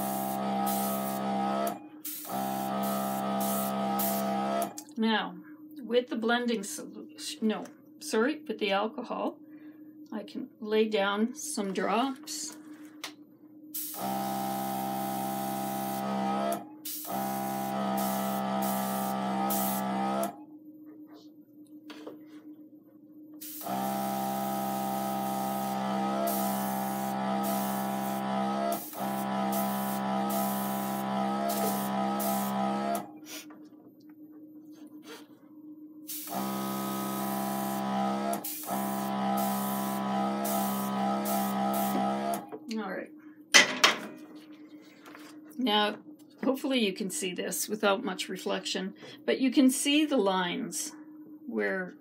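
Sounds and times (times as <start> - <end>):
airbrush hissing: 0.0 - 1.3, 2.0 - 4.4, 16.8 - 19.9, 23.4 - 33.5, 36.1 - 42.0.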